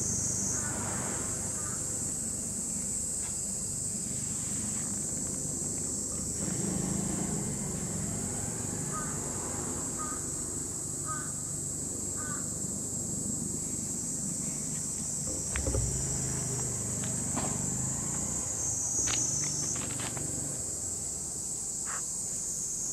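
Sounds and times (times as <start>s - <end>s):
high insect drone: 0.0s - 22.9s
distant bird calls: 0.4s - 2.3s, 8.1s - 10.4s, 11.0s - 11.4s, 12.2s - 12.6s, 21.8s - 22.2s
soft low thump: 15.3s - 16.4s.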